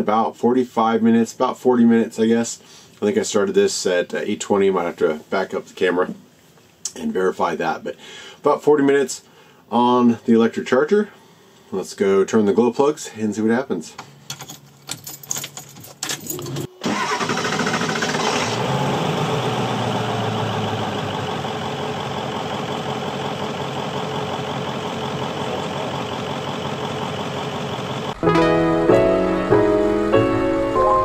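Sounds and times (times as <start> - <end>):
diesel engine starting and idling: 16.3 - 28.2.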